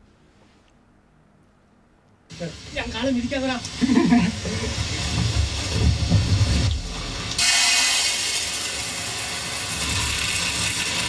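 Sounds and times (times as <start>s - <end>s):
dry lentils pouring into metal pan: 7.4s - 11.0s.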